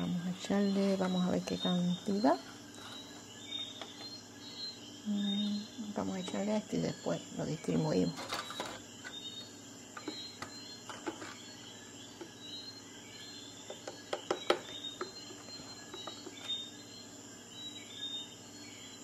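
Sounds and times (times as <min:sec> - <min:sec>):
faint high-pitched chirping: 0:00.0 - 0:19.0.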